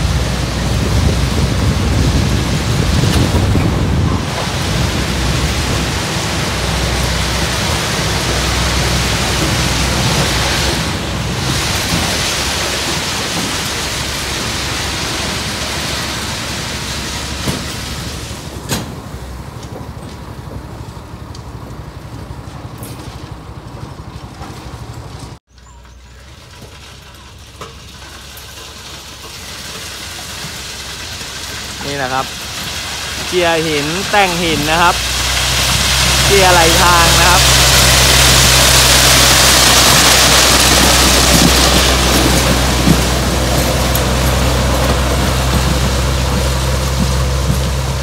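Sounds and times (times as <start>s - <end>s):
ballast rushing noise: 0.0s - 19.2s, 31.7s - 48.0s
machine engine rumble: 0.0s - 48.0s.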